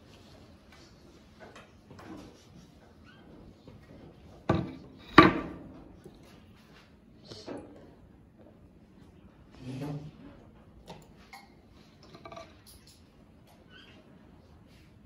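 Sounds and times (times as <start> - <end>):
hard objects knocking: 4.5 - 5.6.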